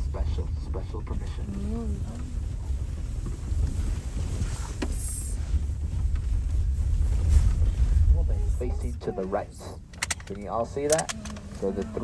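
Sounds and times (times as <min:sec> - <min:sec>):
wind buffeting microphone: 0:00.0 - 0:09.5.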